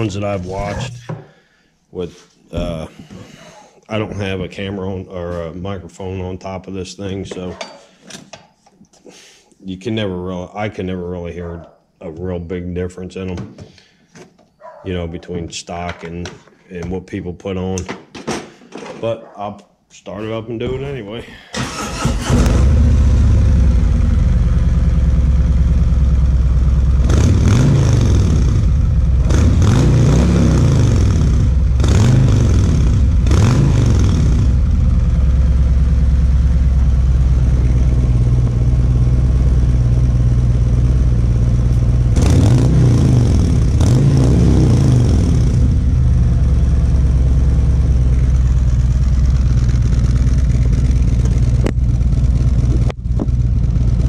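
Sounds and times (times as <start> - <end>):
motorcycle engine idling: 22.7 - 27.0, 34.4 - 42.2, 45.6 - 54.0
motorcycle throttle blips: 31.0 - 54.0.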